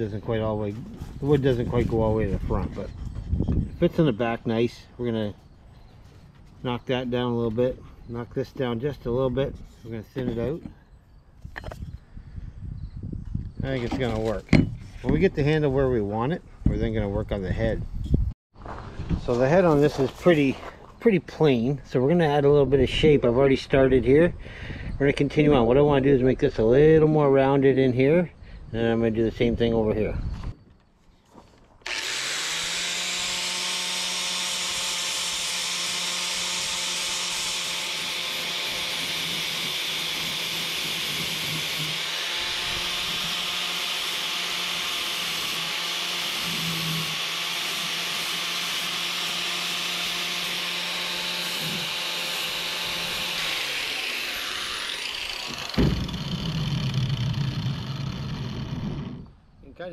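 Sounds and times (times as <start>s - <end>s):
angle grinder grinding steel: 31.8s - 59.4s
low rumbling: 54.4s - 59.6s.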